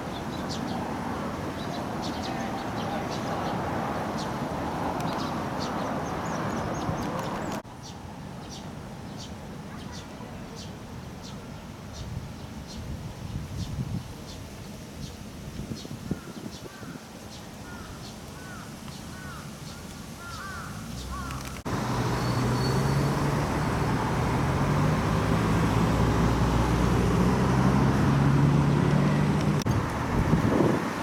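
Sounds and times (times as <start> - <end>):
road traffic noise: 0.0 - 11.9, 17.7 - 31.0
crow cawing: 20.2 - 21.4
low engine hum: 20.8 - 31.0.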